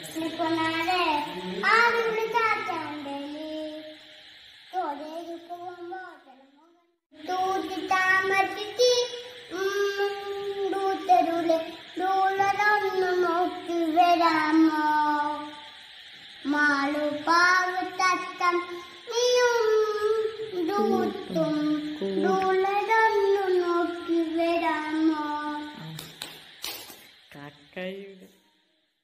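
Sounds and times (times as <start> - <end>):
toddler singing: 7.2 - 15.6, 16.4 - 25.8.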